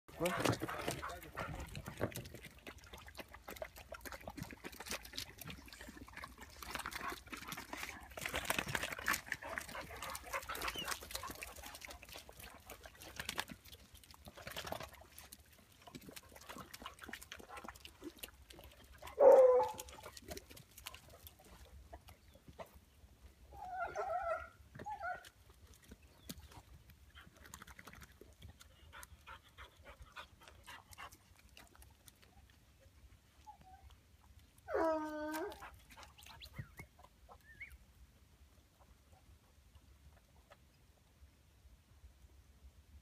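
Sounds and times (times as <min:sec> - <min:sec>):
hounds barking: 0:19.1 - 0:19.9.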